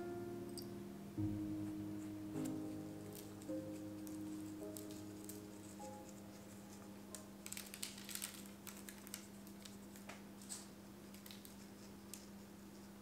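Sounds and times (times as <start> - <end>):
steady low hum: 0.0 - 7.8
seeds pattering onto dough: 2.4 - 13.0.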